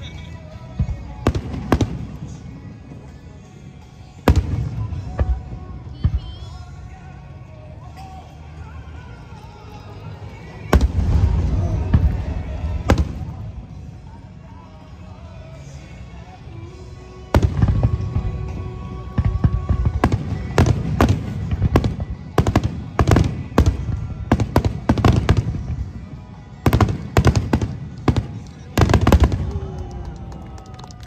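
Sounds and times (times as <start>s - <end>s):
fireworks crackling: 10.3s - 15.1s, 17.2s - 31.0s.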